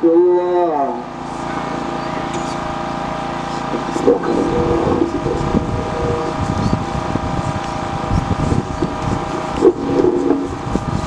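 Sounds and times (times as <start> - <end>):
voices: 0.0 - 10.9
steady hum: 0.0 - 11.0
wind buffeting microphone: 3.7 - 11.0.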